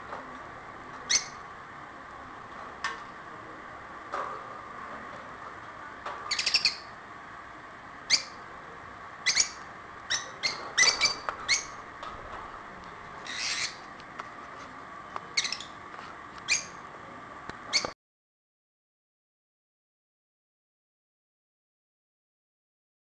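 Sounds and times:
faint steady hum: 0:00.0 - 0:18.0
lovebirds chirping: 0:06.3 - 0:06.9, 0:08.1 - 0:08.4, 0:09.2 - 0:11.9, 0:13.2 - 0:13.9, 0:15.3 - 0:15.8.

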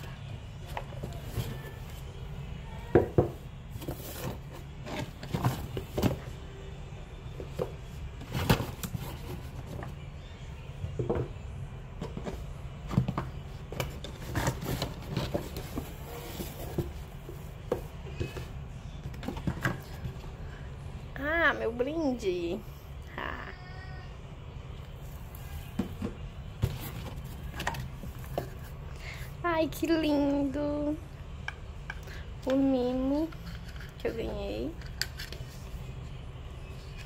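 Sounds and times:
boxes knocking and scraping: 0:12.0 - 0:20.1, 0:25.7 - 0:28.7.

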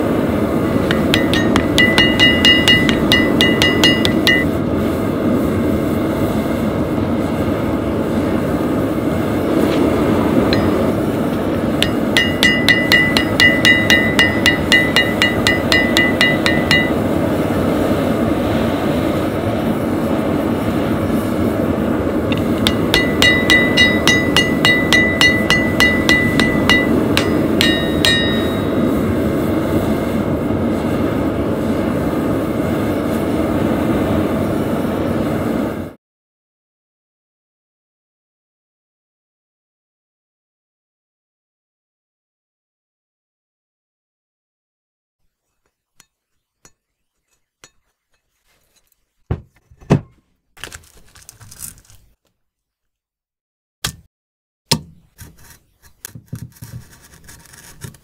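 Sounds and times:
steady rushing noise: 0:00.0 - 0:35.9
hammer ringing on anvil: 0:00.8 - 0:04.6, 0:10.5 - 0:11.0, 0:11.8 - 0:17.2, 0:22.3 - 0:29.0.

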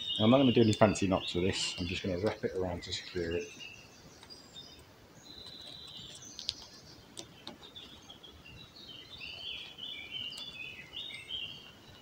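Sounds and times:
birds chirping: 0:00.0 - 0:12.0
faint sharp clicks: 0:04.2 - 0:07.6.

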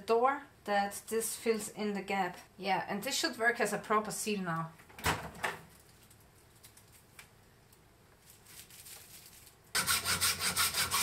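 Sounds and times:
hacksaw cutting metal: 0:09.8 - 0:11.0.

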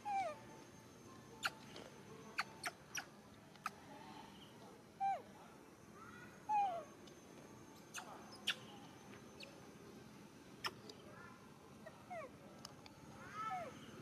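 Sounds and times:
macaque squeaky calls: 0:00.0 - 0:00.4, 0:02.4 - 0:03.8, 0:06.5 - 0:06.9, 0:07.9 - 0:08.7, 0:10.6 - 0:10.8.

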